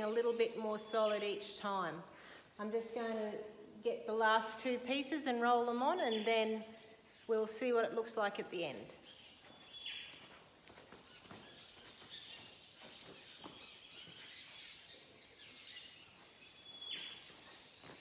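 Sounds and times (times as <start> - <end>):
faint birds chirping: 5.0 - 18.0.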